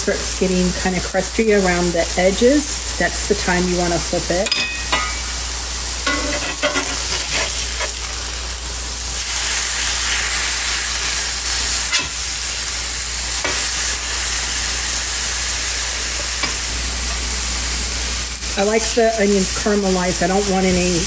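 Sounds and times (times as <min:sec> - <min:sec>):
meat and onions sizzling on griddle: 0:00.0 - 0:21.0
metal spatula scraping iron: 0:06.1 - 0:08.0.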